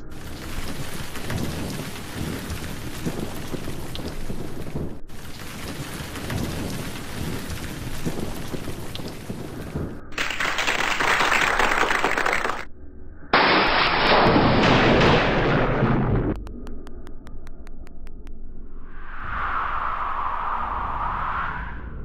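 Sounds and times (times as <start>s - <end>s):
low rumble: 0.0s - 10.2s, 12.7s - 22.0s
heavy rain falling: 0.0s - 12.6s.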